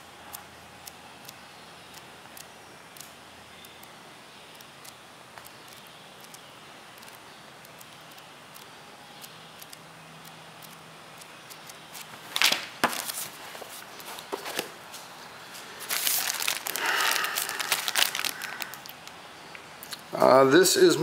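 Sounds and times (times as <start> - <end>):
paper handling: 12.0 - 19.0
plastic packet crinkling: 15.8 - 19.2.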